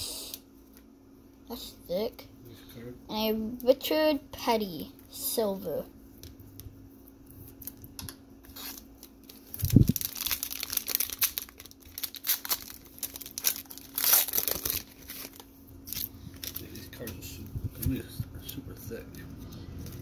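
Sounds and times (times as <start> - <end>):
foil wrapper crinkling: 8.5 - 17.2.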